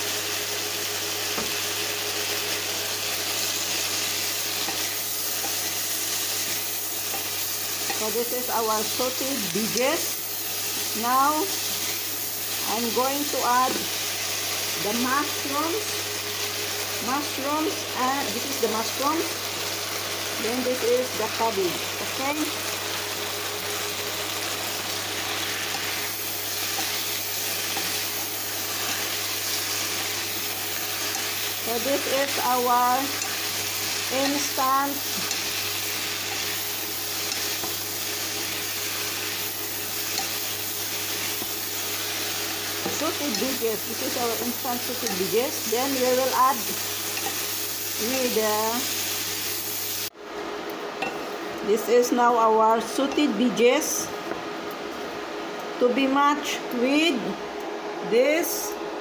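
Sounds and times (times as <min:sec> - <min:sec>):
vegetables sizzling in a pan: 0:00.0 - 0:50.3.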